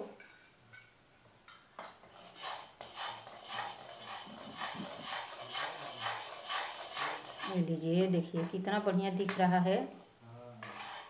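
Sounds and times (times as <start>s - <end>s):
spoon scraping metal pan: 1.8s - 9.4s, 10.6s - 11.0s.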